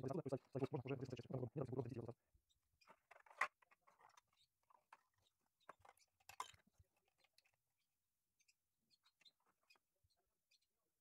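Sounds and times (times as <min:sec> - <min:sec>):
plastic parts clicking and rustling: 0:02.8 - 0:07.6.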